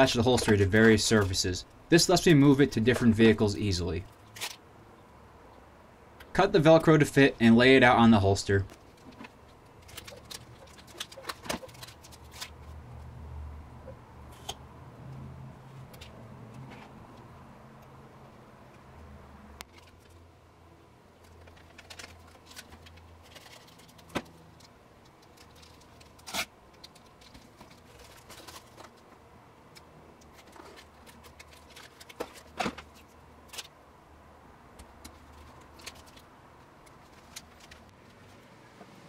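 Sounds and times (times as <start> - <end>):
plastic backing crinkling: 8.7 - 12.8, 21.2 - 29.2, 30.2 - 33.7, 35.0 - 36.3.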